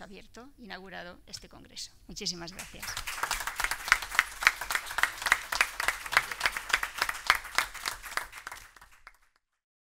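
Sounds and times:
audience applause: 2.6 - 9.4.

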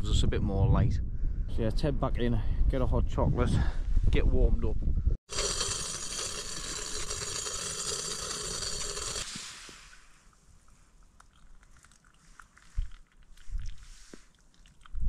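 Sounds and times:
camping stove hissing: 5.3 - 10.4
water pouring into cup: 5.3 - 15.0.

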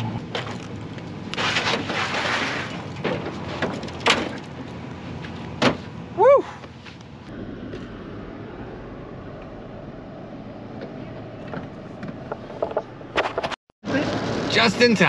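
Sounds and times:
rustling and scraping: 0.3 - 6.0, 10.9 - 14.3
man shouting woo: 6.2 - 6.6.

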